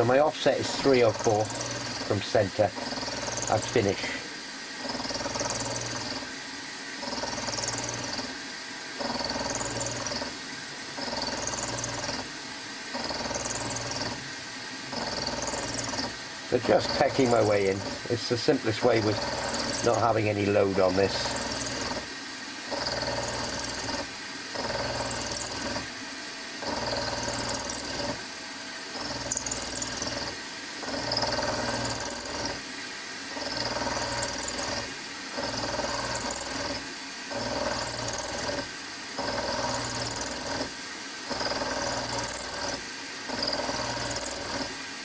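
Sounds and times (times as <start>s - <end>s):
high-pitched cutting noise: 0.0s - 4.2s, 4.8s - 6.3s, 14.9s - 22.1s, 22.7s - 25.9s, 29.0s - 32.6s, 33.4s - 40.7s, 41.3s - 44.7s
milling machine spindle running: 0.0s - 6.3s, 6.9s - 8.4s, 9.0s - 12.3s, 12.9s - 25.9s, 26.6s - 28.3s, 28.9s - 32.6s, 33.3s - 44.8s.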